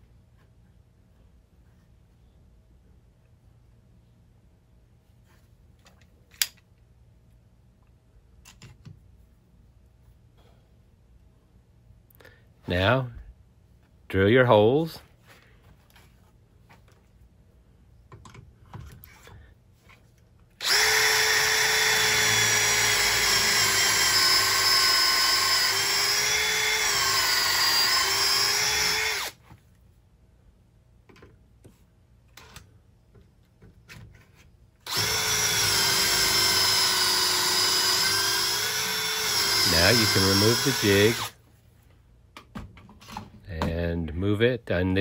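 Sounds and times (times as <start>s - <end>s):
cordless drill boring into wood: 20.6s - 29.4s, 34.8s - 41.4s.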